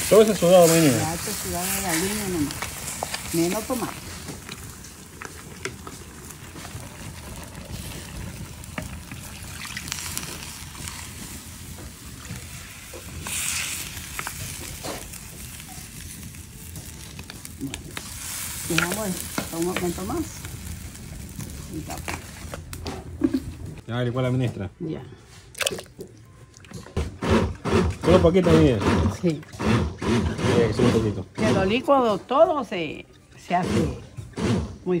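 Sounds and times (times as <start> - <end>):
water pouring and splashing: 0.0 - 22.8, 25.5 - 29.1
meat sizzling in a clay pot: 0.0 - 24.7.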